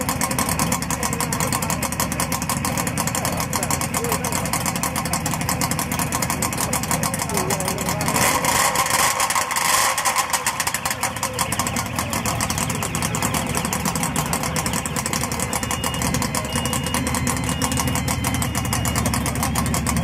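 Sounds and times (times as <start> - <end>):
two-stroke motorcycle engine idling: 0.0 - 20.0.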